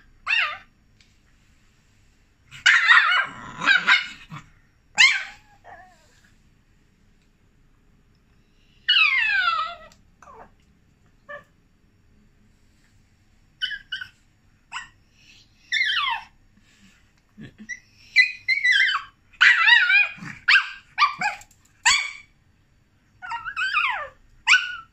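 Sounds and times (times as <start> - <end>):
small dog whining and yipping: 0.2 - 0.7, 2.6 - 4.2, 5.0 - 6.2, 8.8 - 10.5, 13.6 - 16.4, 17.7 - 22.3, 23.2 - 24.9.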